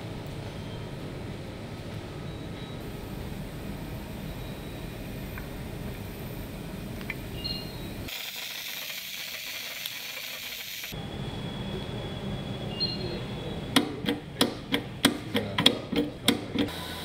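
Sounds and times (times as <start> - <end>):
low workshop hum: 0.0 - 17.0
compressed gas hissing: 6.0 - 11.0.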